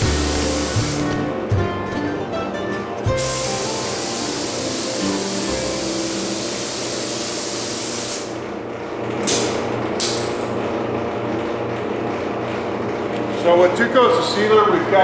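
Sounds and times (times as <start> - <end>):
spray gun hissing: 0.0 - 1.3, 3.2 - 8.3.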